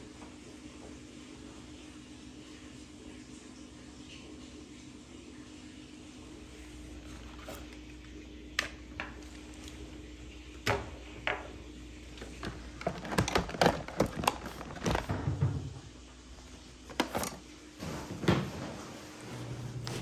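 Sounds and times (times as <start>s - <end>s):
faint steady hum: 0.0s - 20.0s
objects clattering into plastic bin: 12.1s - 15.9s, 16.9s - 17.4s.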